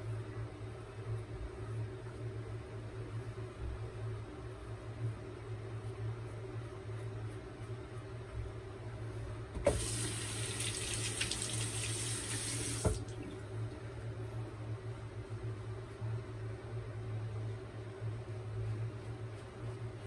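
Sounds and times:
steady low hum: 0.0s - 20.0s
tap running into sink: 9.6s - 13.1s.

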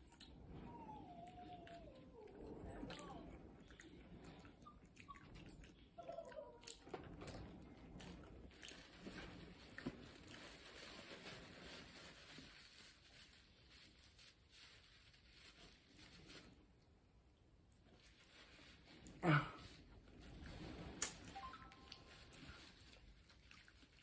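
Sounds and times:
paper wrapper rustling: 8.8s - 16.6s.

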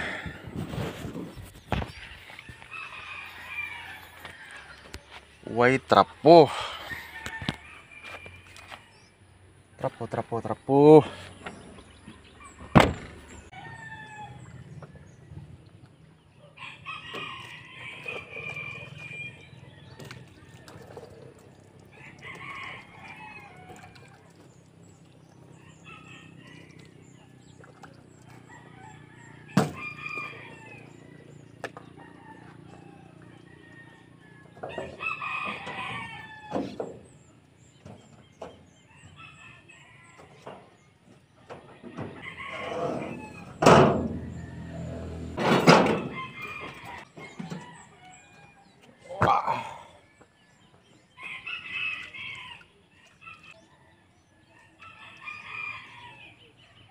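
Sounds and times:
rooster crowing: 2.6s - 4.9s, 28.4s - 31.3s, 32.0s - 36.8s, 42.0s - 48.4s.

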